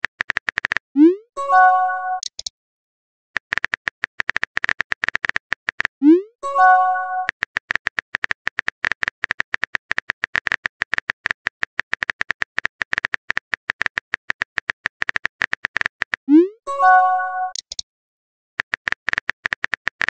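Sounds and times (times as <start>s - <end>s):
phone keyboard typing clicks: 0.0s - 0.8s, 2.2s - 2.5s, 3.4s - 5.9s, 6.9s - 16.2s, 17.5s - 17.8s.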